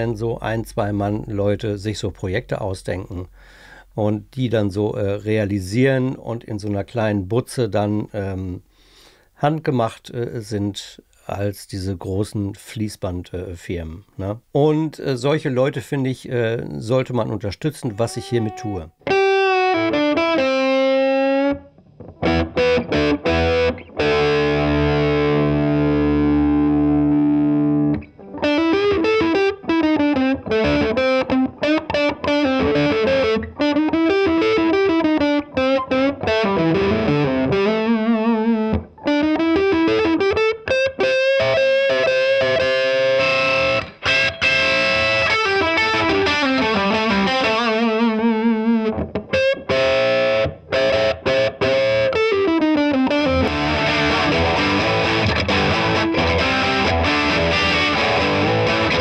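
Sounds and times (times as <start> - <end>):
electric guitar playing: 17.9 - 59.0.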